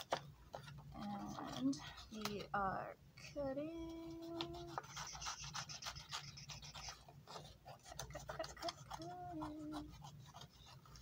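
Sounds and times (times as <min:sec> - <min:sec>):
scissors snipping paper: 0:03.8 - 0:11.0.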